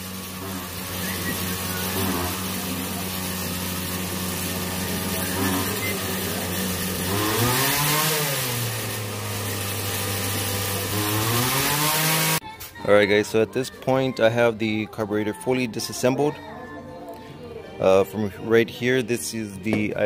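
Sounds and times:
engine running: 0.0 - 12.4.

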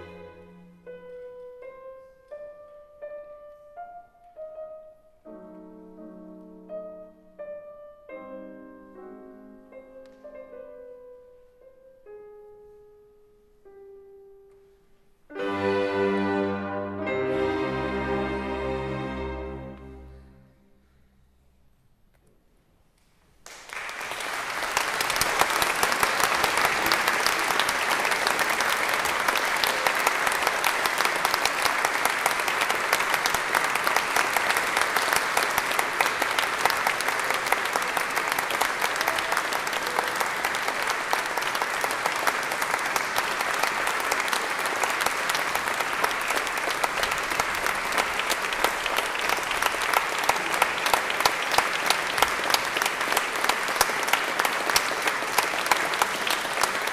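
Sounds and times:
audience applauding in a hall: 23.3 - 56.9.

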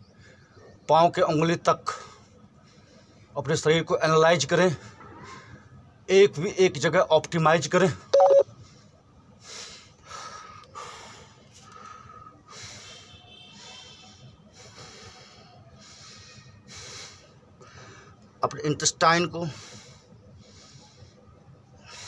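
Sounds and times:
man breathing through nose: 8.7 - 18.2, 19.5 - 22.0.

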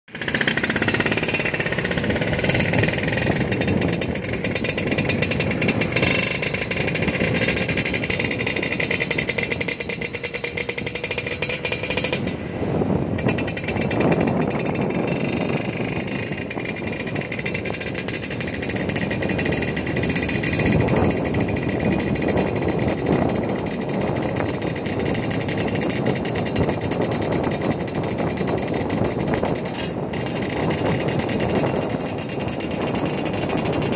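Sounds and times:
motorcycle engines running: 0.1 - 33.9.

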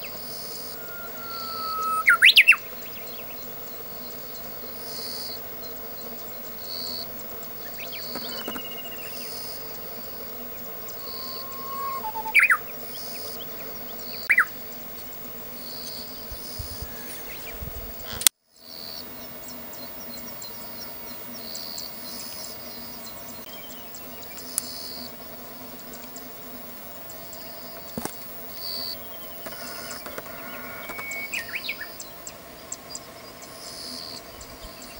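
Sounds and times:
faint high chirp: 0.0 - 3.4, 10.9 - 12.7, 29.8 - 32.0
bush warbler whistled song: 0.0 - 3.5, 7.6 - 9.5, 10.5 - 14.5, 28.8 - 34.9.

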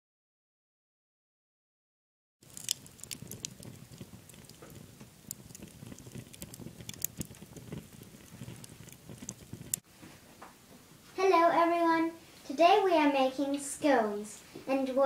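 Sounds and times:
low rumble of flames: 2.4 - 9.8
wood fire crackling and popping: 2.4 - 9.9.

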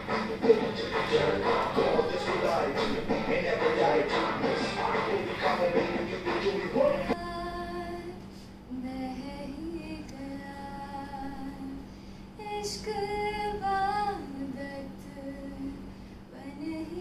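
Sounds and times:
woman singing unaccompanied: 6.9 - 17.0.

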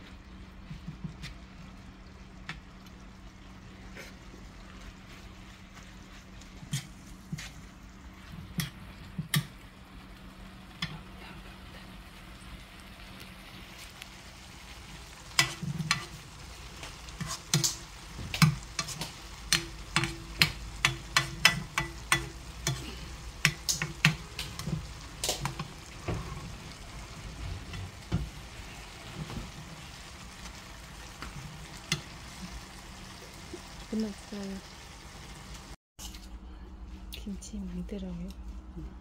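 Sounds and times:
low sizzle: 0.0 - 39.0
spoon scraping a frying pan: 15.3 - 26.5.

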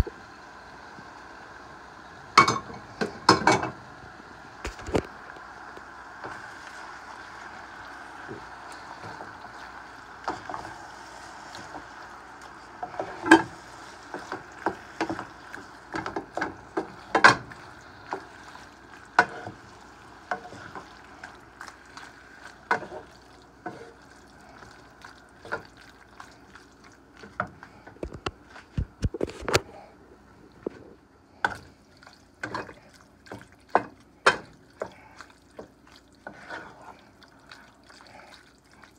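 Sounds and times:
spatula scraping a frying pan: 36.2 - 36.9.

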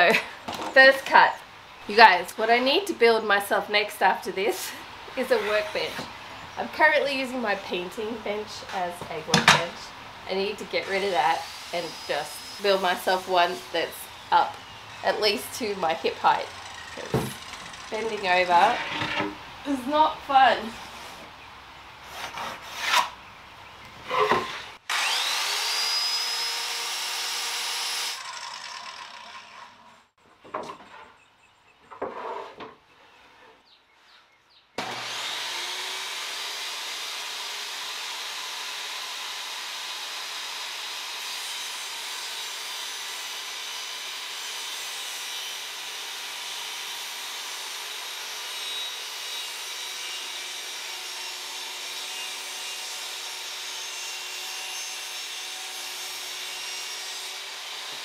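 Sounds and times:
table saw cutting plywood: 5.2 - 6.2, 10.7 - 19.4, 24.0 - 30.1, 34.8 - 58.0
power saw whining: 10.8 - 19.3, 24.1 - 30.1, 34.8 - 44.4
knocks and handling sounds: 23.9 - 24.8, 30.2 - 31.2.

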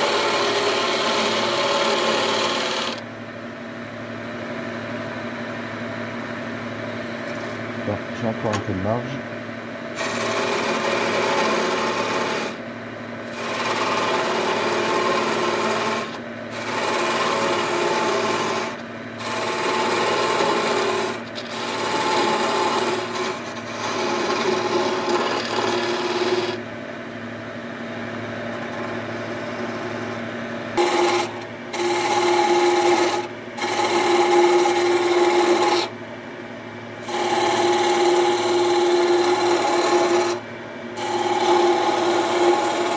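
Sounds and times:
lathe humming: 0.0 - 3.0, 9.9 - 12.6, 13.2 - 26.6, 30.8 - 35.9, 36.9 - 40.4, 41.0 - 42.9
turning tool shaving wood: 0.0 - 3.0, 10.0 - 12.6, 13.3 - 26.6, 30.8 - 35.9, 37.0 - 40.4, 41.0 - 42.9.

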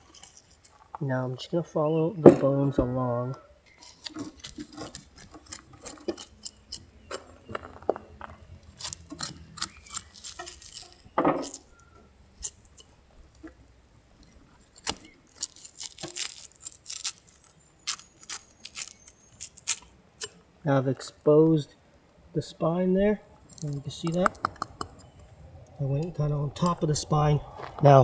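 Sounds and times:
knife scraping fish bones: 0.0 - 0.8, 3.7 - 13.6, 14.2 - 20.4, 23.5 - 25.1.

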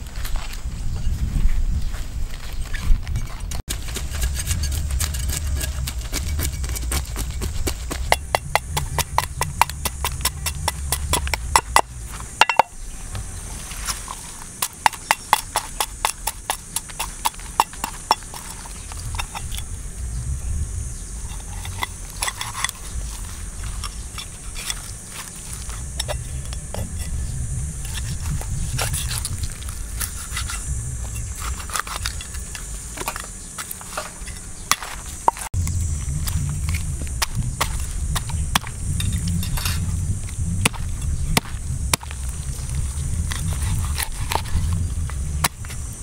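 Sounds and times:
knife scraping fish scales: 3.7 - 11.4, 21.3 - 26.2, 30.0 - 33.2.

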